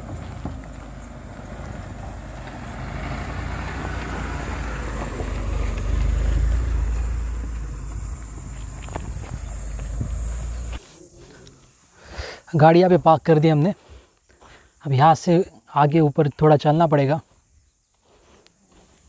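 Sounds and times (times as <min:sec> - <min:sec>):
car engine: 0:00.0 - 0:10.8.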